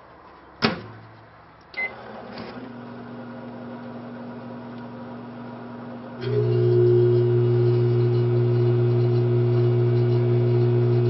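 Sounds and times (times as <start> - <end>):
keypad beep: 1.8 - 2.0
microwave oven humming: 1.8 - 11.0.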